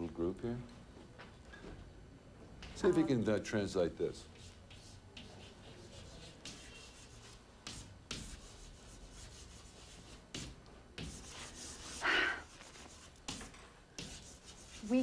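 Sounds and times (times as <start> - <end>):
chalk scratching on chalkboard: 4.1 - 15.0.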